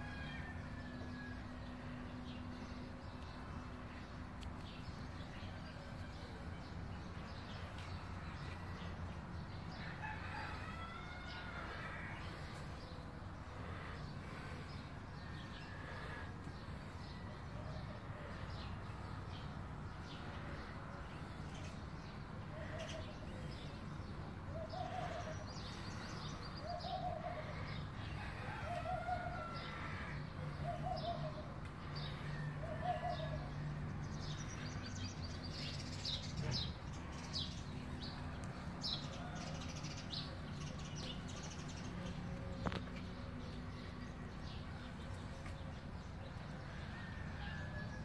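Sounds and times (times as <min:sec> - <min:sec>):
steady low hum: 0:00.0 - 0:32.8
birds calling: 0:00.0 - 0:47.6.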